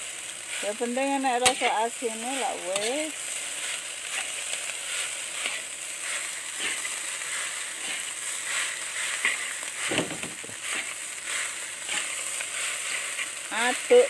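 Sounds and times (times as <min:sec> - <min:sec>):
frying hiss: 0:00.0 - 0:14.0
metal spatula scraping wok: 0:00.4 - 0:14.0.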